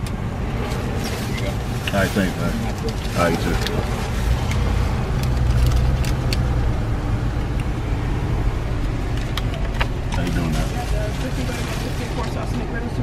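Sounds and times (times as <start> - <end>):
engine and road rumble: 0.0 - 13.0
clicks and rustles in car cabin: 9.1 - 10.6.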